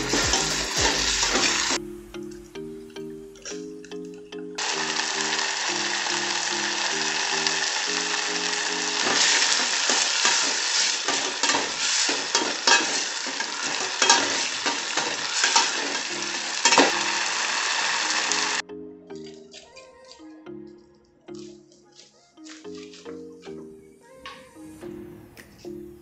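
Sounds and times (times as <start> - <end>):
sauce sizzling in a pot: 0.0 - 1.8, 4.6 - 18.6
soft background music: 0.0 - 9.9, 18.1 - 26.0
metal ladle scraping a pot: 9.0 - 17.0.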